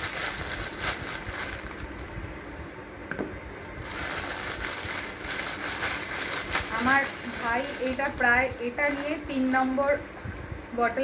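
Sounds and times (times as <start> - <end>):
plastic bag crinkling: 0.0 - 2.2, 3.8 - 10.0.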